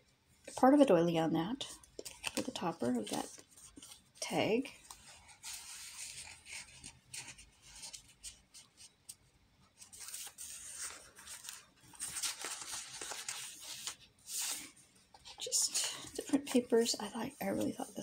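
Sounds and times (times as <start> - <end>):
paper and card rustling: 1.6 - 9.2, 9.8 - 18.0
page turning: 2.0 - 4.0, 9.8 - 15.4.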